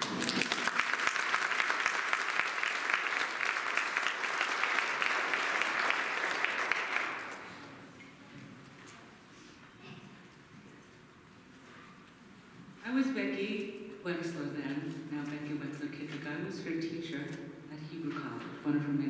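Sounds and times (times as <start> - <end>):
crowd applauding: 0.0 - 7.6.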